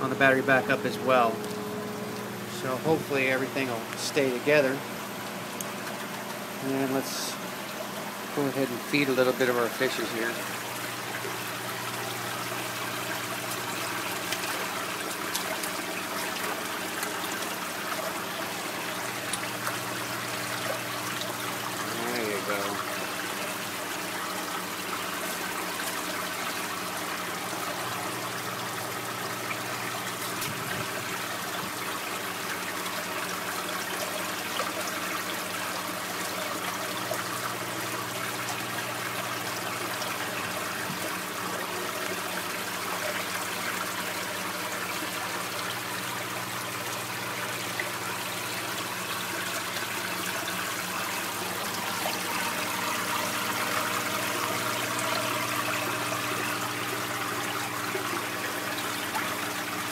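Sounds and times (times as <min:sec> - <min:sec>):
low steady hum: 0:00.0 - 0:32.0
water trickling and bubbling: 0:00.0 - 0:59.9.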